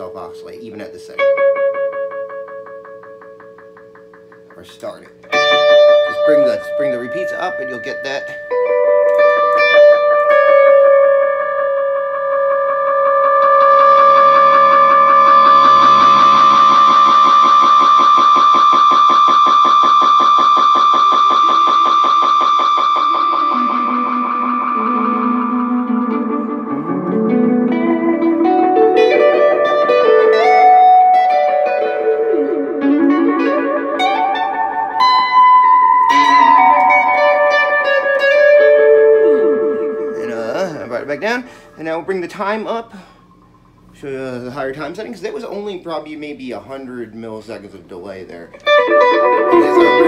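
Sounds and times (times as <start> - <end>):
electric guitar runs with delay: 0.8 - 41.6, 48.6 - 50.0
pulsing delay feedback tone: 11.6 - 41.5, 48.7 - 50.0.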